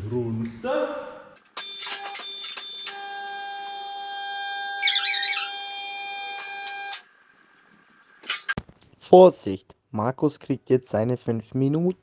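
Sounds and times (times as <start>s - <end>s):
brief squeal: 4.8s - 5.7s.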